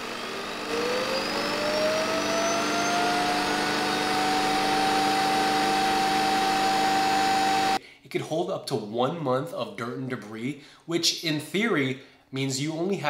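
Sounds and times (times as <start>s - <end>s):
vacuum dock motor whine: 0.0s - 7.8s.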